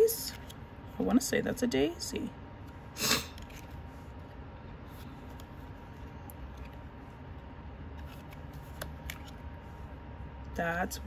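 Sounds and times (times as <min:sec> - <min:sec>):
low room hum: 0:00.0 - 0:11.0
cards being handled: 0:00.3 - 0:00.7, 0:02.6 - 0:09.9.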